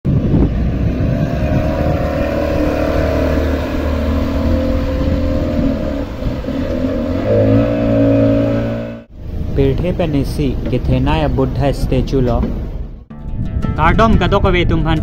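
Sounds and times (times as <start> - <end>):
outboard motor running: 0.1 - 9.0.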